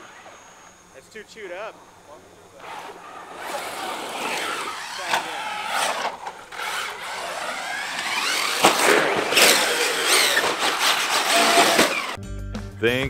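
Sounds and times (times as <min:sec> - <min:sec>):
toy truck motor whining: 0:02.5 - 0:12.2.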